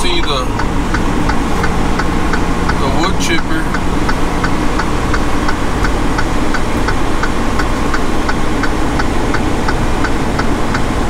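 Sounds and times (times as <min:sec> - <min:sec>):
even ticking: 0:00.0 - 0:11.0
truck engine running: 0:00.0 - 0:11.0.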